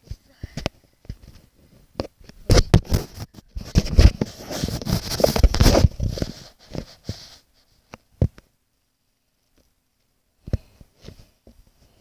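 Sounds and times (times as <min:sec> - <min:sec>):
phone rubbing against fabric: 0:02.8 - 0:07.8.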